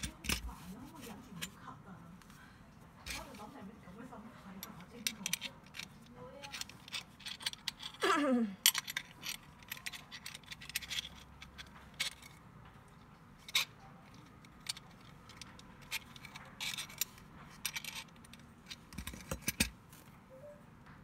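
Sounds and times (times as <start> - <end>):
small metal clicks and clinks: 8.6 - 12.4.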